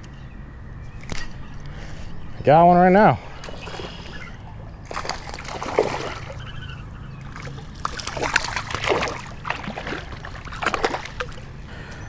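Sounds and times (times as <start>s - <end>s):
fish splashing at water surface: 4.9s - 6.4s, 7.3s - 11.4s.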